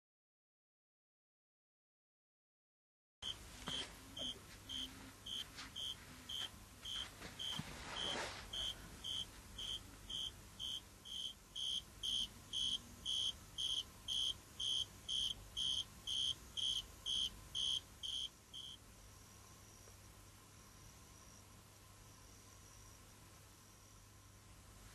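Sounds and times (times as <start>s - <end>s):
faint scratchy rustles: 3.5s - 10.1s
tree cricket chirping: 4.2s - 19.9s, 20.6s - 24.0s.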